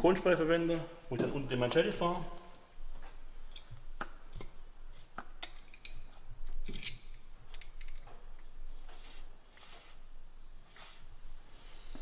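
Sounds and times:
aerosol spray hisses: 0:08.4 - 0:12.0.

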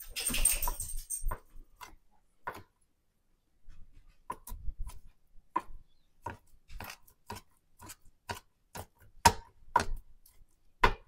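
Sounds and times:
knife chopping on cutting board: 0:04.3 - 0:11.0.

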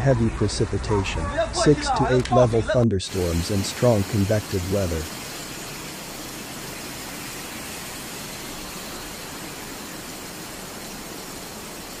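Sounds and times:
heavy rain on pavement: 0:03.1 - 0:12.0.

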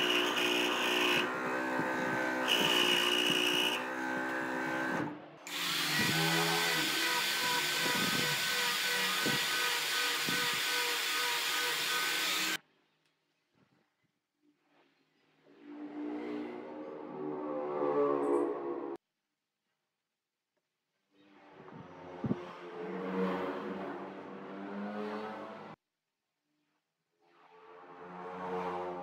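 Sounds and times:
angle grinder sanding wood: 0:00.0 - 0:04.9, 0:05.5 - 0:12.6
scroll saw cutting wood: 0:00.0 - 0:12.6.

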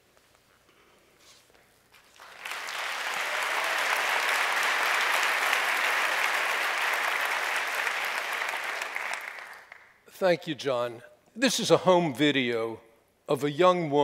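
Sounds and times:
audience applauding: 0:02.0 - 0:10.0.

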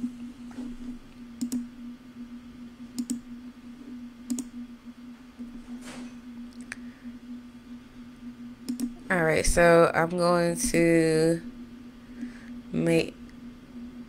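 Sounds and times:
steady low hum: 0:00.0 - 0:14.0
computer mouse clicking: 0:01.4 - 0:01.7, 0:03.0 - 0:03.2, 0:04.3 - 0:04.5, 0:08.7 - 0:09.0.

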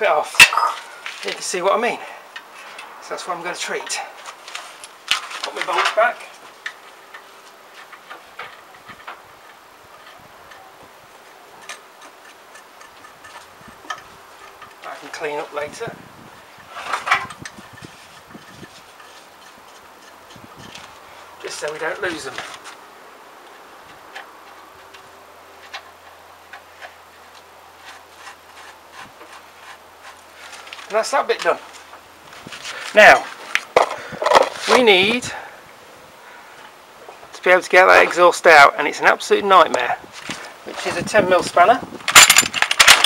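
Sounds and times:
bolts and tool clicking on metal: 0:42.0 - 0:43.0.

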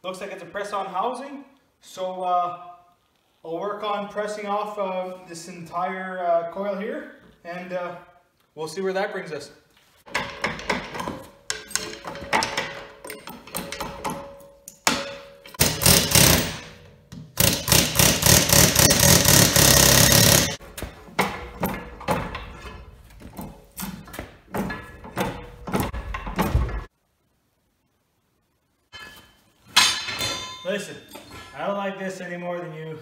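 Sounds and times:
tools clanging on steel: 0:10.1 - 0:17.6, 0:20.0 - 0:26.9, 0:28.9 - 0:31.6
air-tool hammering: 0:15.6 - 0:20.6.

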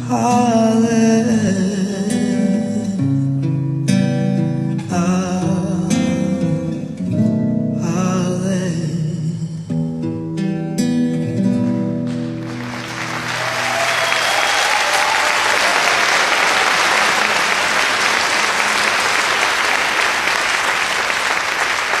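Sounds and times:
audience applauding: 0:12.1 - 0:22.0.

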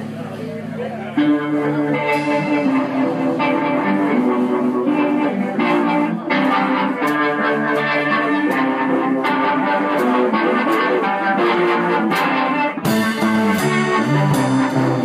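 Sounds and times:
blues band playing live: 0:00.0 - 0:15.0
electric guitar: 0:00.0 - 0:15.0
drum strikes: 0:01.8 - 0:05.0, 0:06.3 - 0:15.0.

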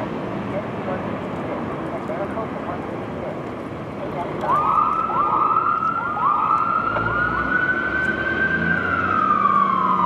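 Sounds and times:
fire engine siren: 0:04.3 - 0:10.0.

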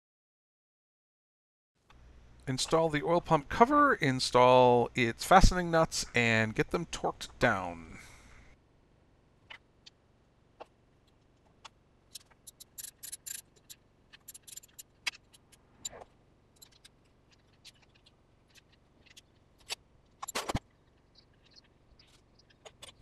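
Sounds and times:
hand ratchet clicking: 0:12.2 - 0:16.0.

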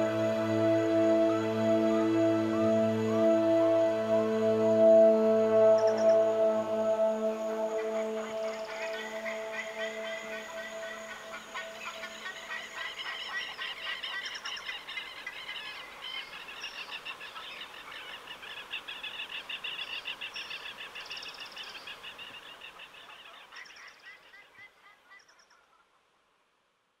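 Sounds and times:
birds chirping and calling: 0:07.7 - 0:18.3.

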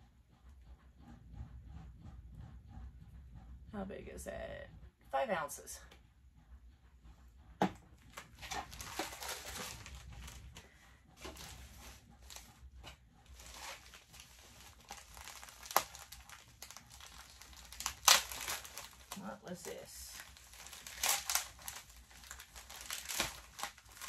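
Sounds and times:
plastic mailer crinkling: 0:08.1 - 0:10.6, 0:11.2 - 0:12.5, 0:13.3 - 0:24.0.

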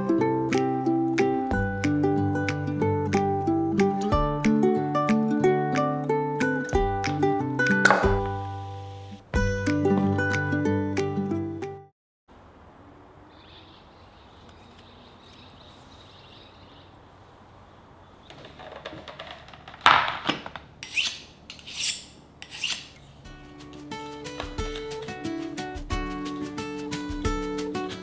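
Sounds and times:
plucked guitar music: 0:00.0 - 0:11.9, 0:23.3 - 0:28.0
faint steady hiss: 0:08.2 - 0:09.3
food preparation rubbing and scraping: 0:20.8 - 0:25.1.

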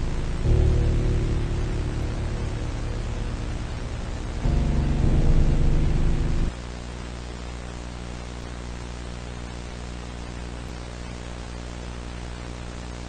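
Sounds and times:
loud distorted low burst: 0:00.0 - 0:06.6
low electrical hum: 0:00.0 - 0:13.0
static hiss: 0:00.0 - 0:13.0.

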